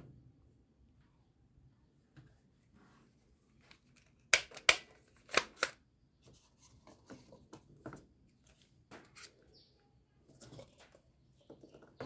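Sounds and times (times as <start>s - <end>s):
toy gun parts clacking: 3.7s - 5.8s.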